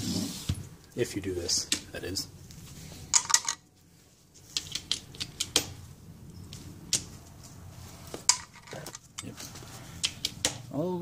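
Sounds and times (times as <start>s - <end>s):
metal tools clicking and tapping: 3.1s - 3.6s, 4.5s - 7.1s, 8.2s - 10.6s.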